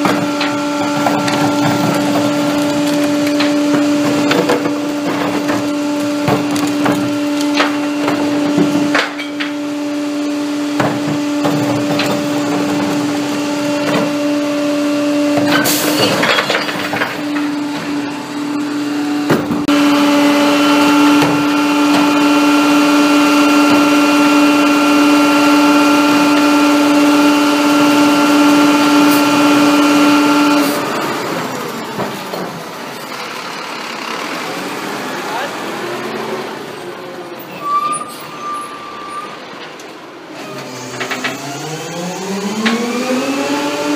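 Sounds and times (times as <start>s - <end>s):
clattering knocks of carts: 0.0s - 9.6s, 10.7s - 14.3s, 15.3s - 18.2s, 30.7s - 36.1s, 38.9s - 41.7s
truck engine and hydraulics hum: 0.0s - 43.9s.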